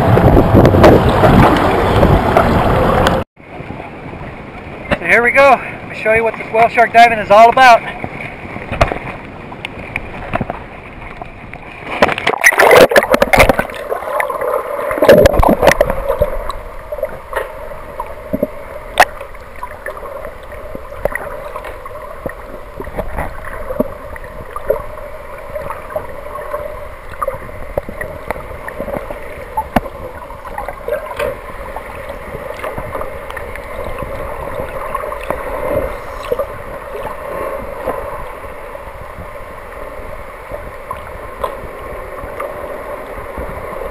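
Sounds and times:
water splashing hard: 0:05.4 - 0:38.4
bubbling: 0:12.0 - 0:17.3.

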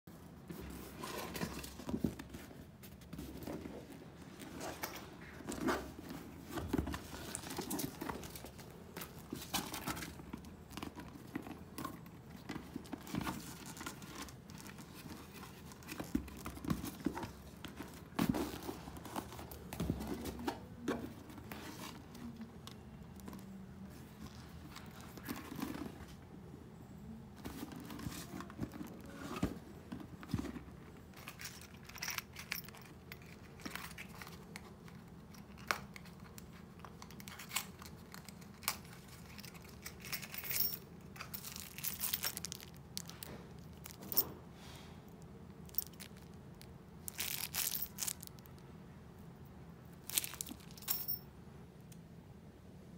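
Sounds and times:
handbag rustling and crinkling: 0:00.4 - 0:26.2, 0:27.4 - 0:44.3, 0:45.6 - 0:48.6, 0:50.0 - 0:51.2.

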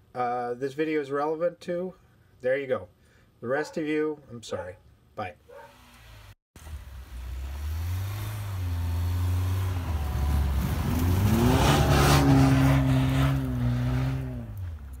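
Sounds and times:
car engine passing by: 0:05.7 - 0:15.0
tyres rushing through snow: 0:05.7 - 0:15.0.

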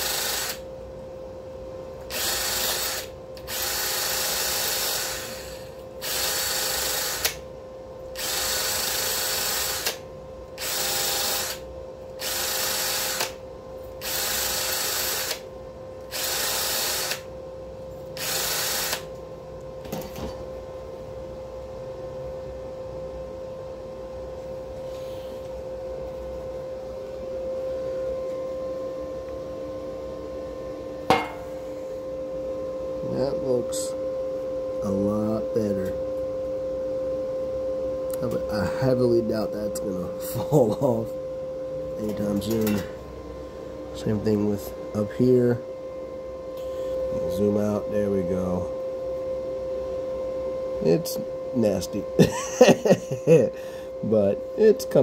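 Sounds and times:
welding arc bursts: 0:00.0 - 0:00.6, 0:02.1 - 0:07.4, 0:08.2 - 0:10.0, 0:12.2 - 0:13.4, 0:14.0 - 0:15.4, 0:16.1 - 0:17.2, 0:18.2 - 0:19.1
welder hum: 0:00.0 - 0:17.5, 0:18.1 - 0:20.6, 0:24.6 - 0:34.1, 0:38.1 - 0:55.0.

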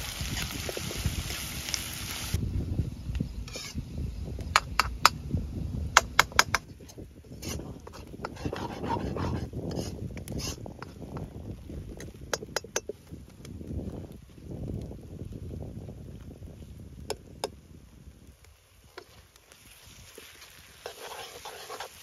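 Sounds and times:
ladle scraping frying onions: 0:00.0 - 0:02.4, 0:03.5 - 0:03.8, 0:06.4 - 0:13.0, 0:18.8 - 0:22.0.

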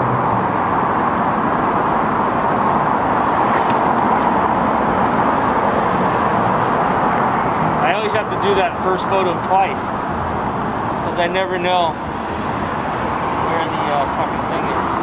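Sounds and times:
road traffic noise: 0:00.0 - 0:15.0.

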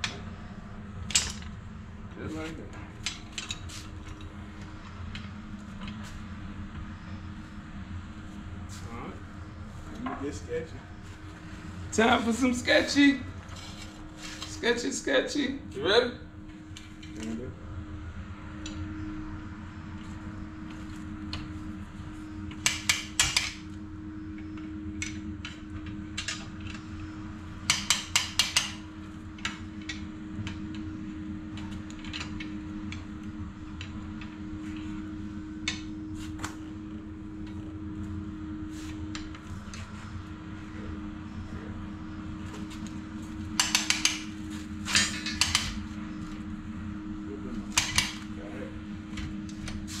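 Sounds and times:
steady background hum: 0:00.0 - 0:50.0
metal tools tapping on springs: 0:43.6 - 0:44.3.

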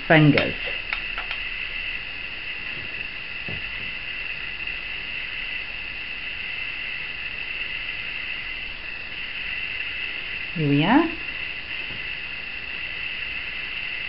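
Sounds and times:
background hiss: 0:00.0 - 0:14.0
high-pitched whine: 0:00.0 - 0:14.0.

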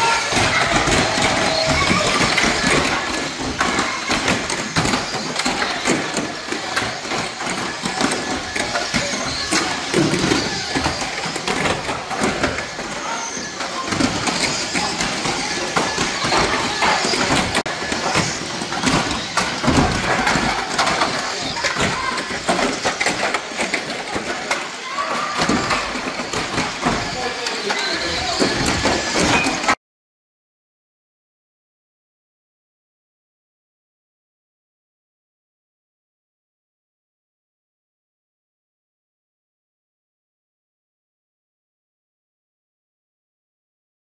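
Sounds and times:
toy cars clattering: 0:00.0 - 0:29.8
toy cars knocking together: 0:00.0 - 0:29.8.

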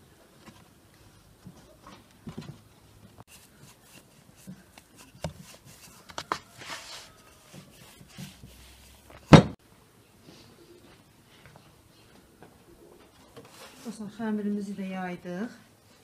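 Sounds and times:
loud thump: 0:09.3 - 0:09.6.

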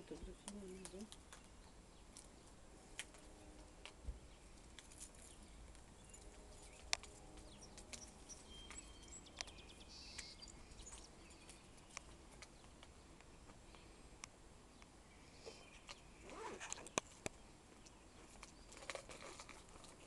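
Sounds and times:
faint high chirps: 0:05.2 - 0:12.1.

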